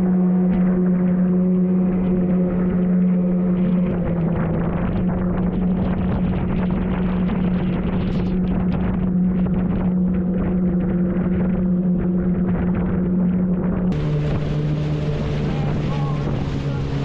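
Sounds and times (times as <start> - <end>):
outboard motor running: 0.0 - 17.0
water spray against hull: 13.9 - 17.0.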